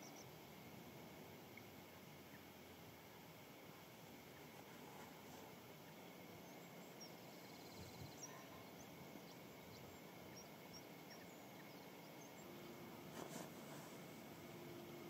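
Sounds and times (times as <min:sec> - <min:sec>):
faint background hiss: 0:00.0 - 0:15.0
faint high-pitched chirps: 0:05.8 - 0:12.8.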